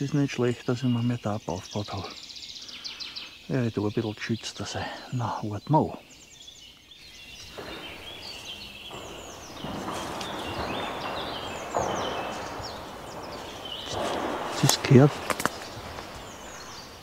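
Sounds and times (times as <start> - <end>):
birds singing: 0.0 - 17.0
tree falling crash: 7.3 - 17.0.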